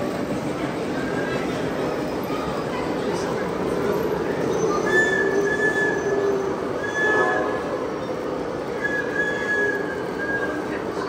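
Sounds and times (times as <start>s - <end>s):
model trains running: 0.0s - 11.0s.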